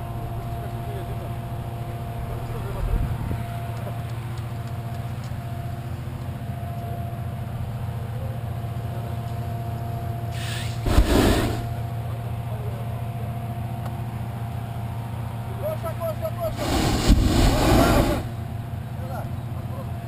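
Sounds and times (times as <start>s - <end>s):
loud rushing burst: 10.5s - 11.8s, 16.5s - 18.4s.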